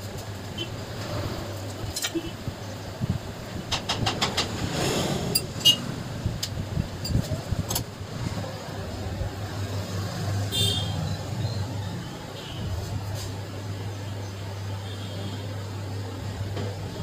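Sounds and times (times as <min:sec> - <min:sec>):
motor traffic hum: 0:00.0 - 0:17.0
clicks and knocks of flywheel: 0:03.6 - 0:04.7.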